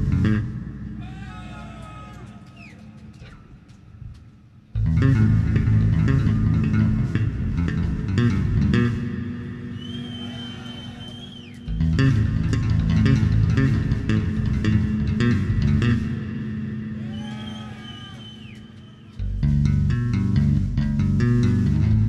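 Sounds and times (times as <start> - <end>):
electric bass guitar solo: 0.0 - 1.6, 4.8 - 9.8, 11.7 - 16.9, 19.2 - 22.0.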